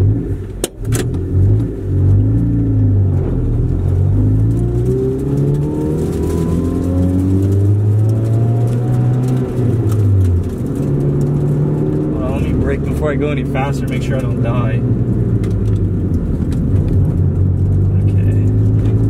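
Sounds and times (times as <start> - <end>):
car engine while driving: 0.0 - 19.0.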